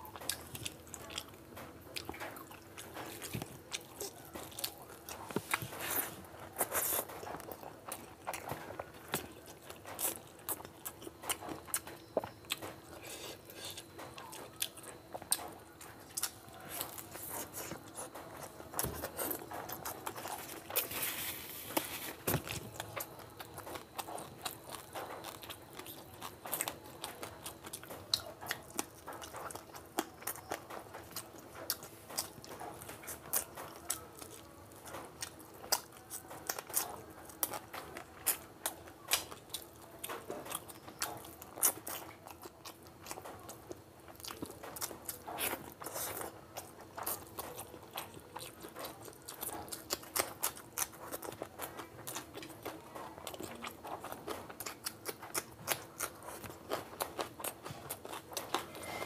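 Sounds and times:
wet chewing and smacking: 0.0 - 59.0.

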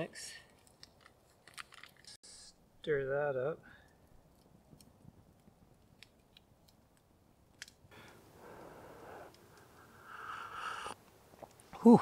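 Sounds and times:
campfire crackling: 0.0 - 12.0
soft rushing breath: 7.9 - 11.0.

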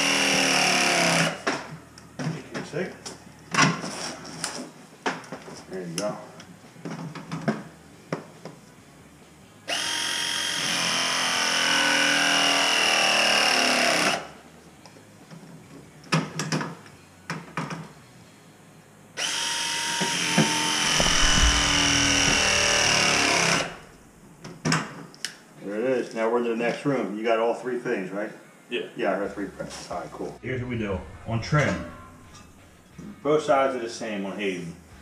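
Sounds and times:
press tool motor whine: 19.2 - 24.0.

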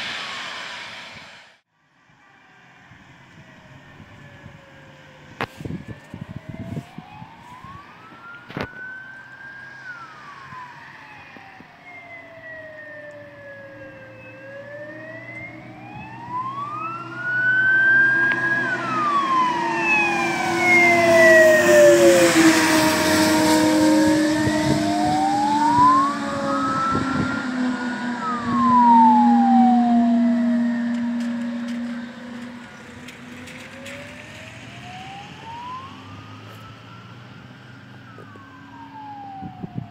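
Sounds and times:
truck engine: 0.0 - 1.6, 12.6 - 39.4
tyre hiss on wet road: 0.0 - 1.6
fire engine siren wailing: 2.6 - 39.9.

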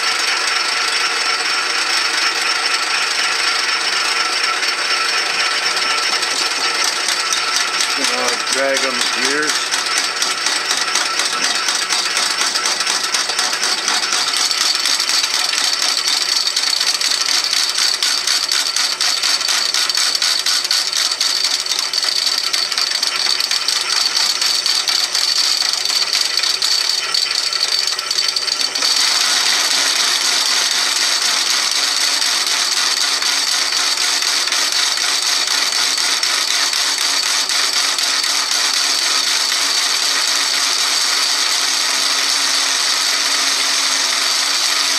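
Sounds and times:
metal lathe rattling: 0.0 - 44.9.

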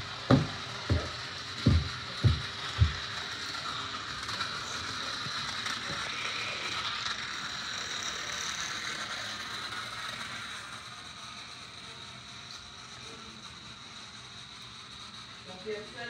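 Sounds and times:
toy car motor whirring: 0.0 - 16.0
footstep on wooden floor: 0.3 - 3.0.

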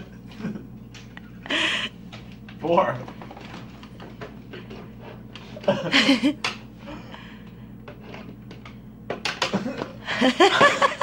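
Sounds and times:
people laughing: 5.6 - 6.4, 9.5 - 11.0.

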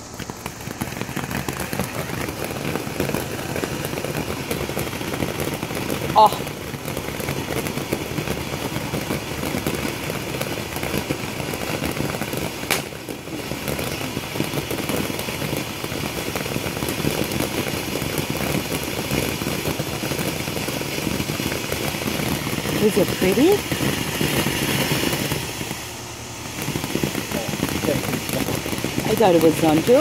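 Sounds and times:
firework crackling and hissing: 0.0 - 30.0
sharp crack: 12.6 - 13.0.

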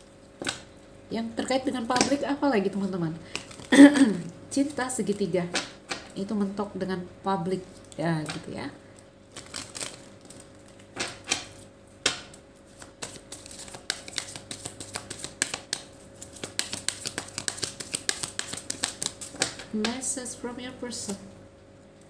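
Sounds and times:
cards being shuffled: 1.9 - 4.0, 9.3 - 20.0.

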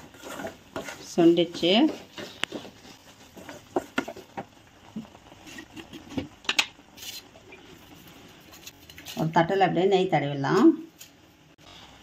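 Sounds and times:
spatula stirring sticky mix: 0.0 - 6.0.

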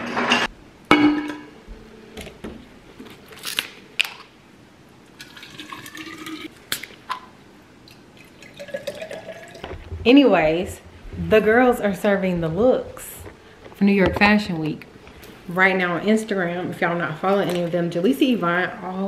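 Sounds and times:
water pouring into bottle: 8.2 - 9.6.

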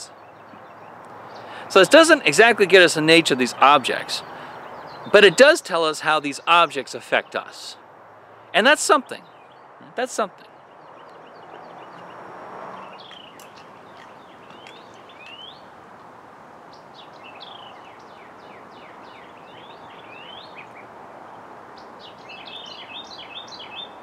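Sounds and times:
outdoor background hiss: 0.0 - 24.0
small birds chirping: 0.0 - 24.0.

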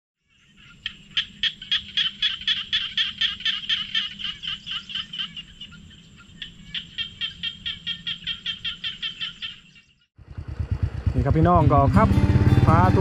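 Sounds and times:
rapid high animal calls: 0.2 - 10.0.

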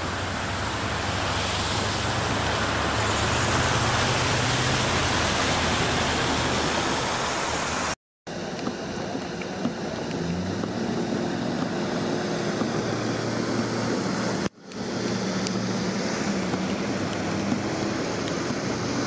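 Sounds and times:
tyres spraying floodwater: 0.0 - 19.0
engines humming: 8.3 - 19.0.

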